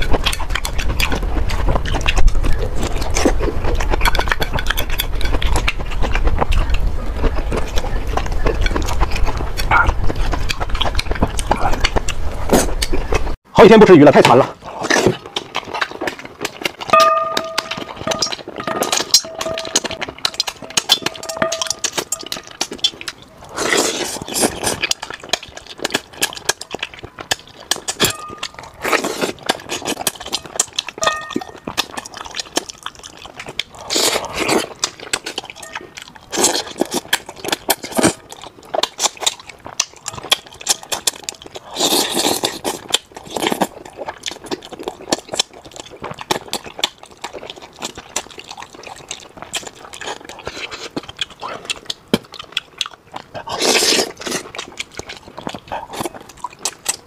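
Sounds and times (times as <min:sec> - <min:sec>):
wet chewing and smacking: 0:00.0 - 0:57.0
chopsticks clicking on metal bowl: 0:17.0 - 0:22.4, 0:31.0 - 0:31.5
loud slurps: 0:22.6 - 0:24.9, 0:33.7 - 0:34.8, 0:41.6 - 0:43.6, 0:53.4 - 0:54.6.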